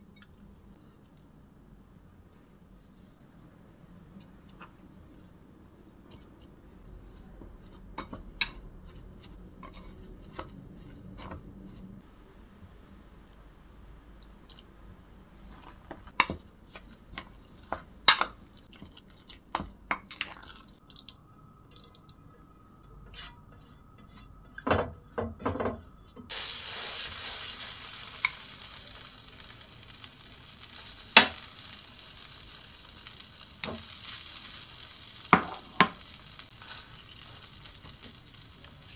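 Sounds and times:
batter sizzling on hot pan: 26.3 - 38.9.

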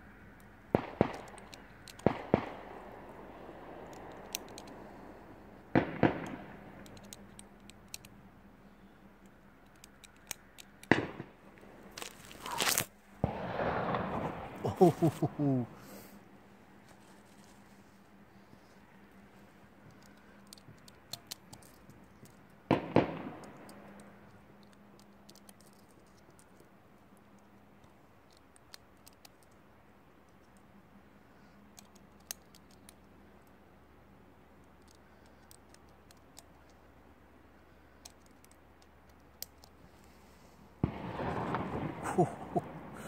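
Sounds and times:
loud gunshots echoing: 0.7 - 4.0, 5.7 - 6.6, 10.9 - 11.4, 13.2 - 15.7, 22.7 - 23.8, 40.8 - 43.0
distant gunshots: 0.7 - 4.3, 5.7 - 6.8, 10.9 - 11.4, 13.2 - 15.6, 22.7 - 24.0, 40.8 - 43.0.

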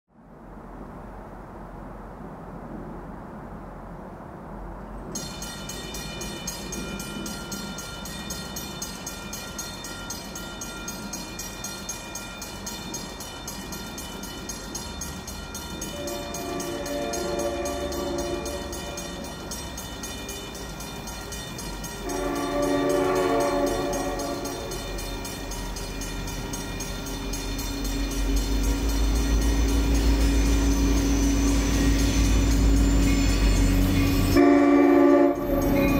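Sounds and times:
crossing bell ringing rapidly: 5.2 - 35.9
diesel locomotive horn blasts: 15.8 - 19.4, 22.0 - 25.2, 27.2 - 35.9.

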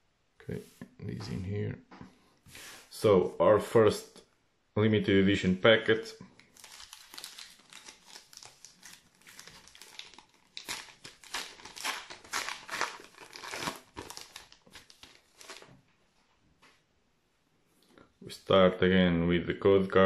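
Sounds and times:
card pack wrapper crinkling tearing: 6.4 - 15.8.

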